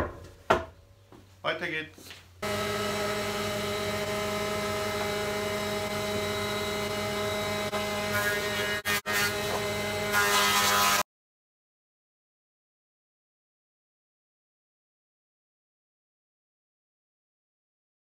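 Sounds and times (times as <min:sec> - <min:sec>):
jointer-planer running: 0:02.4 - 0:11.0.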